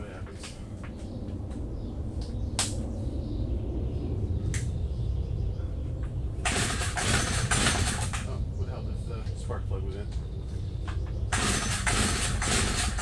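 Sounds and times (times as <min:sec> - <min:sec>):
low steady rumble: 0:00.0 - 0:13.0
sharp clicks: 0:02.2 - 0:02.8
recoil starter pull: 0:11.4 - 0:13.0.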